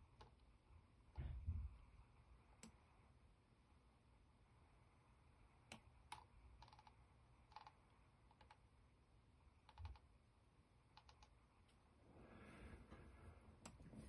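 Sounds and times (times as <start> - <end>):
computer mouse clicks: 2.5 - 2.9, 5.6 - 8.7, 9.6 - 10.1, 10.9 - 11.4
scroll-wheel ticks: 10.9 - 11.4.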